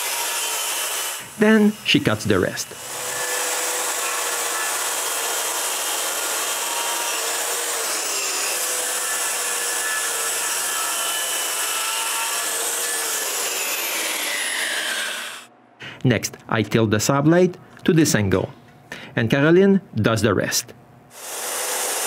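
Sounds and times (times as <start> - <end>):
circular saw cutting wood: 0.0 - 15.5, 21.1 - 22.0.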